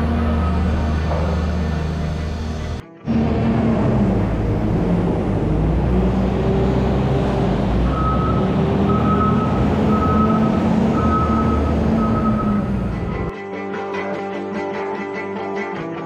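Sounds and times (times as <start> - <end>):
diesel engine working: 0.0 - 13.3
reversing alarm beeps: 7.9 - 12.8.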